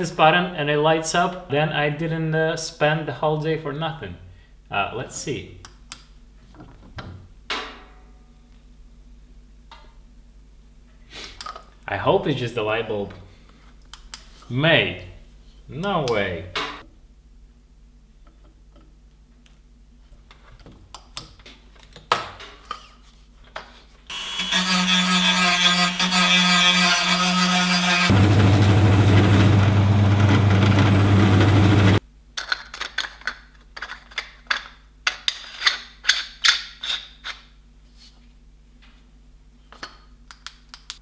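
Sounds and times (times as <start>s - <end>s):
power tool motor running: 24.1s - 32.0s
clicks of small parts handled: 32.4s - 37.4s.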